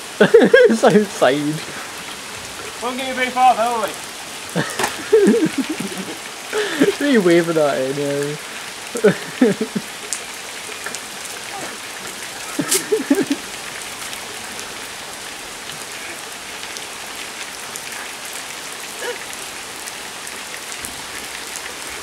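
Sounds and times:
rain falling on wet tarmac: 0:00.0 - 0:22.0.

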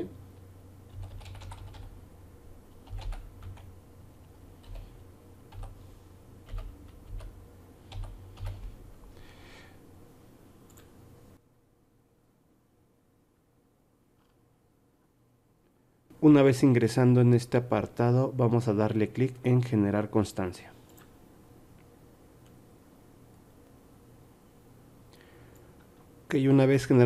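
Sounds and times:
typing on computer keyboard: 0:00.9 - 0:02.0, 0:02.8 - 0:03.7, 0:04.6 - 0:05.8, 0:06.4 - 0:08.8.

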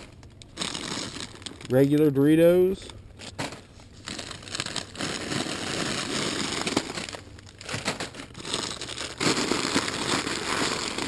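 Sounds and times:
plastic bags crinkling: 0:00.0 - 0:11.0.

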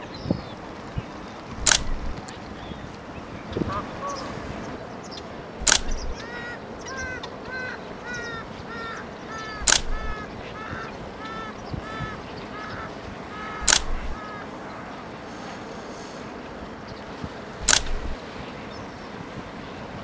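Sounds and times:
birds yapping calls: 0:00.0 - 0:19.3
loud sharp click: 0:01.6 - 0:02.3, 0:05.6 - 0:06.2, 0:09.6 - 0:10.2, 0:13.6 - 0:14.2, 0:17.6 - 0:18.2.

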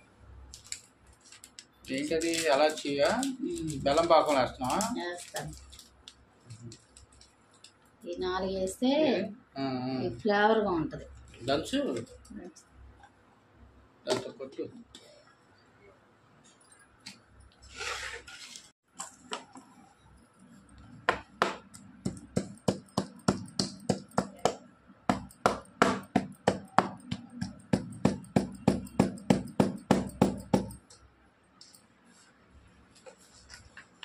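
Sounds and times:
pestle knocking on wooden board: 0:21.1 - 0:30.8.

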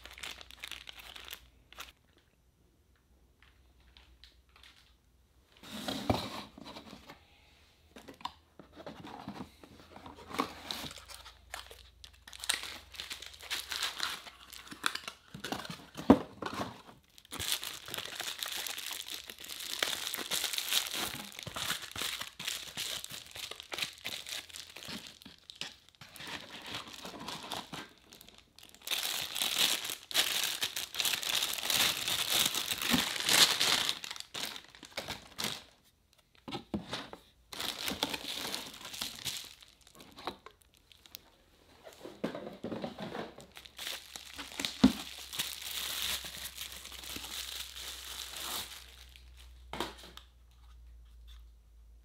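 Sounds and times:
plastic bags crinkling: 0:00.0 - 0:02.0, 0:10.3 - 0:35.8, 0:37.5 - 0:41.4, 0:42.6 - 0:49.7.

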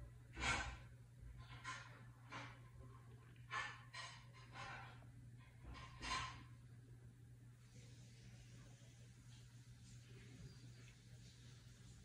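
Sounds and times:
low electrical hum: 0:00.0 - 0:12.0.

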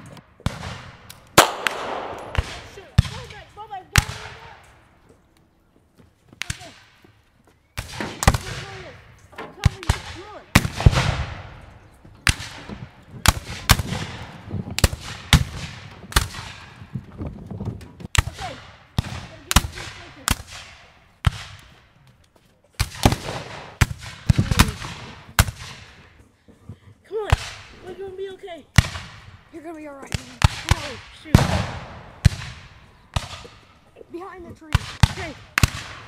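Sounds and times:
echoing gunshots: 0:00.0 - 0:04.8, 0:07.8 - 0:16.8, 0:18.1 - 0:21.7, 0:22.8 - 0:26.1, 0:27.3 - 0:27.8, 0:28.7 - 0:29.5, 0:30.1 - 0:33.8, 0:34.7 - 0:36.0.

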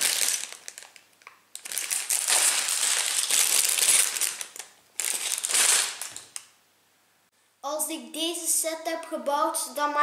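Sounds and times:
plastic bags crinkling: 0:00.0 - 0:06.5.

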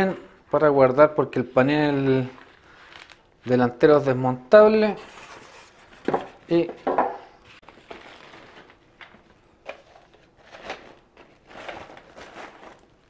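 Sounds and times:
plastic bag crinkling: 0:02.0 - 0:03.5, 0:07.6 - 0:13.0.

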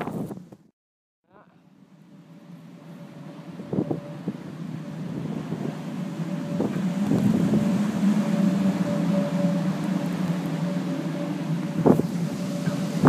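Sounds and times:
power lines humming: 0:01.4 - 0:13.0
wind blowing against microphone: 0:02.8 - 0:13.0.

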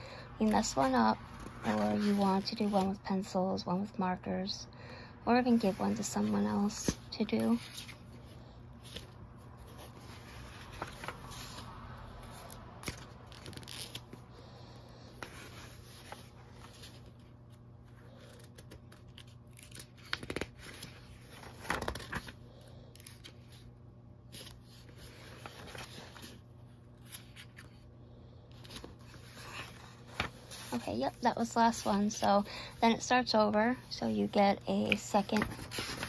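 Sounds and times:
pages turning: 0:08.8 - 0:14.2, 0:15.2 - 0:22.4, 0:24.3 - 0:26.4, 0:27.0 - 0:27.8, 0:28.6 - 0:32.4, 0:34.8 - 0:36.0.

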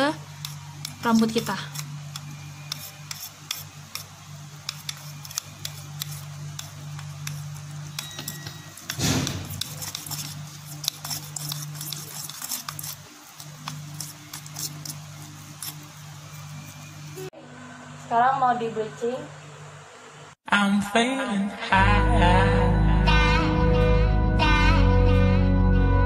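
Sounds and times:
brush scraping in plastic bowl: 0:00.4 - 0:04.1, 0:04.7 - 0:17.0.

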